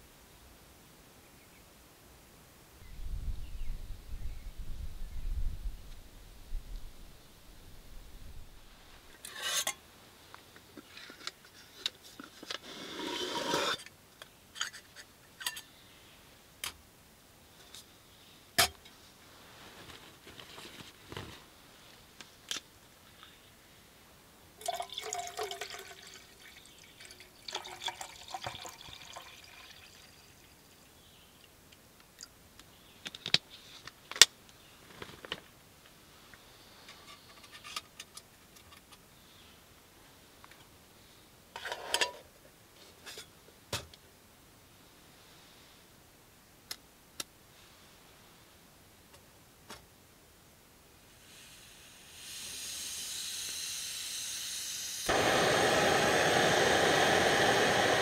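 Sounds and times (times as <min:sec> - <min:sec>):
water poured into metal pot: 0:24.6 - 0:30.5.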